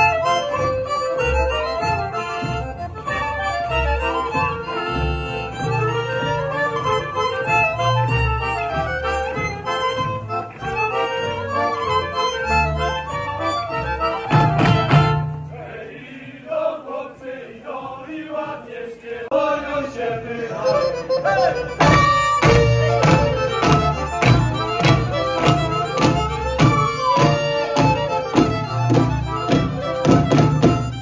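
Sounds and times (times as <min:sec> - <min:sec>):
fiddles: 0:00.0 - 0:15.4, 0:20.0 - 0:31.0
people singing: 0:15.4 - 0:30.8
steady drum beat: 0:21.8 - 0:31.0.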